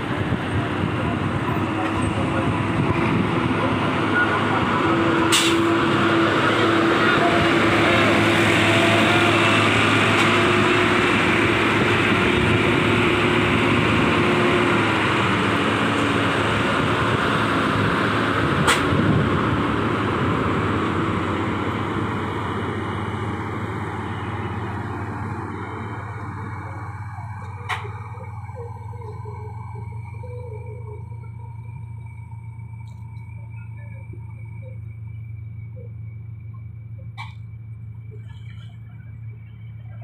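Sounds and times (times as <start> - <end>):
heavy truck diesel engines passing: 0.0 - 40.0.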